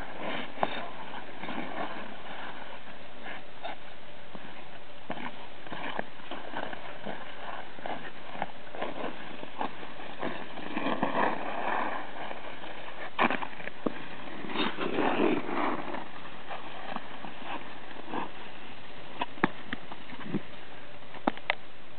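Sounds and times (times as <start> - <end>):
ice skates scraping on ice: 0.0 - 20.5
small clicks and scratches: 5.1 - 18.5.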